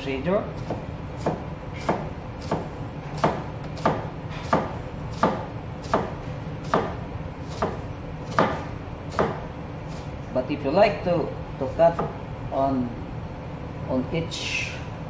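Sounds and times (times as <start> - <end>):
knife slicing onion on board: 0.6 - 10.1.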